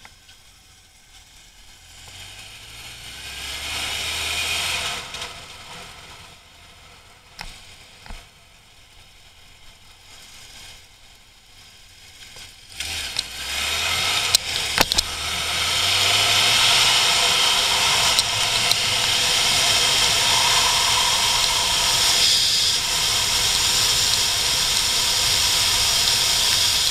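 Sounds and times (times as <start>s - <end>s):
motorcycle engine accelerating: 0.8s - 26.9s
sharp clicks: 14.3s - 15.2s, 16.6s - 26.9s
wind rush on microphone: 15.2s - 26.9s.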